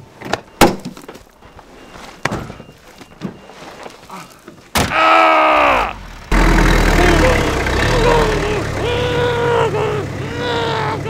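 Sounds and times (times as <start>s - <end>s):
loud steady tone: 6.3s - 11.0s.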